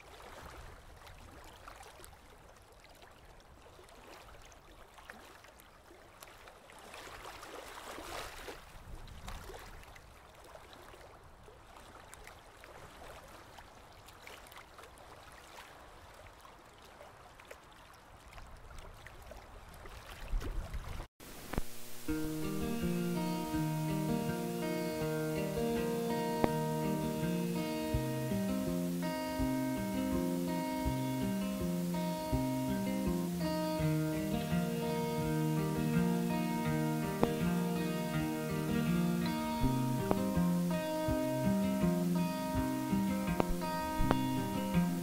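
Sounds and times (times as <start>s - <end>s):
water rushing and bubbling: 20.2s - 45.0s
scattered crackles: 21.2s - 29.2s, 32.2s - 42.0s.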